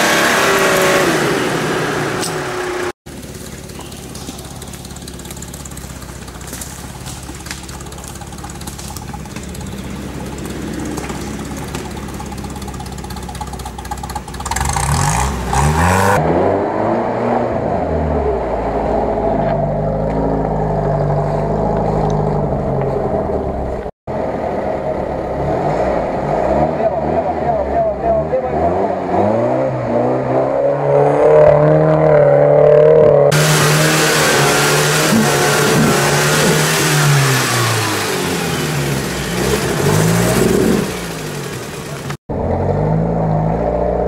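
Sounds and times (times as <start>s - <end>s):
off-road engine revving: 0.0s - 44.0s.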